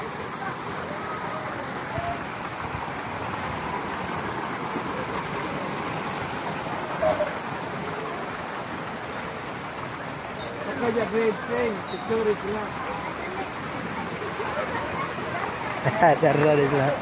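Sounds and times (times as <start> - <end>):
fountain water splashing: 0.0 - 17.0.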